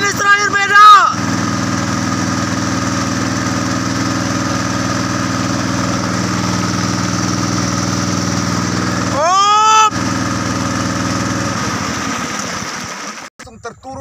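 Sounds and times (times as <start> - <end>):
small boat engine running: 0.0 - 13.9.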